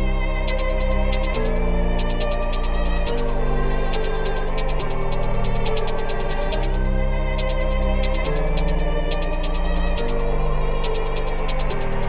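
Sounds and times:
bass and synth chords: 0.0 - 12.0
fast hi-hat pattern: 0.5 - 3.3, 3.9 - 6.8, 7.4 - 10.2, 10.8 - 12.0.

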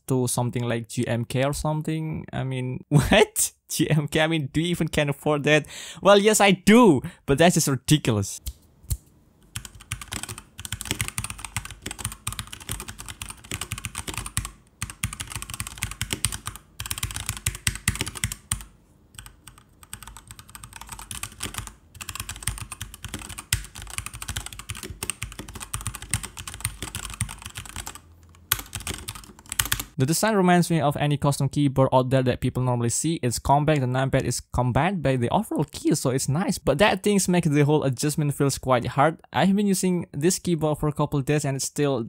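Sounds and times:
mechanical keyboard typing: 9.5 - 30.0.

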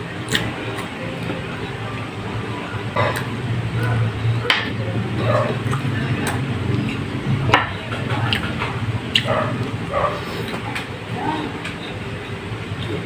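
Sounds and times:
steady low hum: 0.0 - 13.0
person chewing food: 5.2 - 7.1, 8.2 - 10.8.

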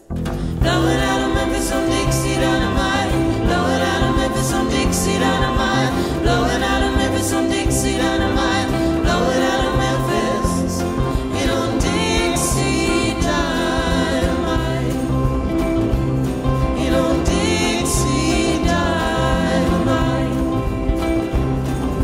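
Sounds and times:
acoustic guitars: 0.0 - 22.0
hand drum: 0.0 - 22.0
upright bass: 0.0 - 22.0
voices singing in harmony: 0.6 - 21.5.

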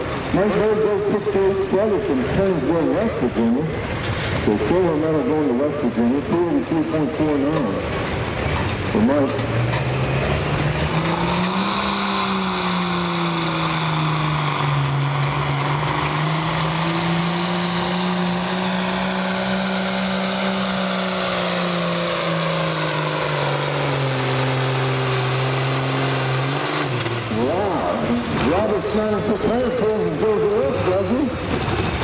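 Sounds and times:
diesel tractor engine under load: 0.0 - 32.0.

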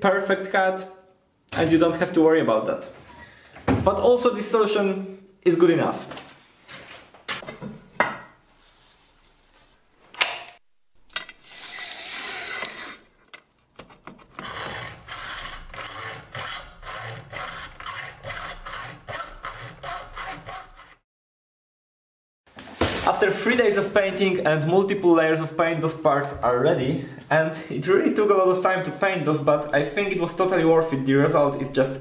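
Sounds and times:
hand saw cutting metal: 11.3 - 13.1, 14.4 - 21.0.

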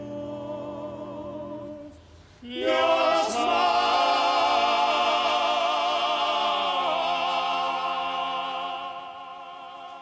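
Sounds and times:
men singing in close harmony: 0.0 - 10.0.

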